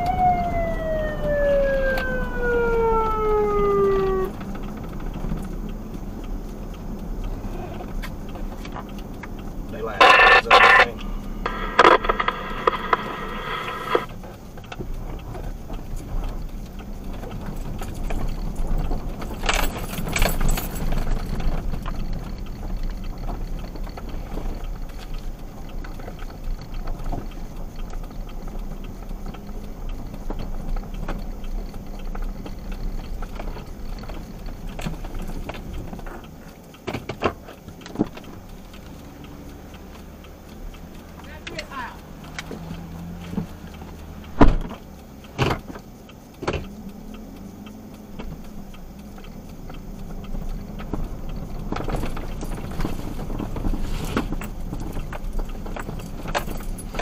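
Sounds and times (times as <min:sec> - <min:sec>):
vehicle engine running inside cab: 0:00.0 - 0:57.0
keys jangling: 0:19.2 - 0:21.2.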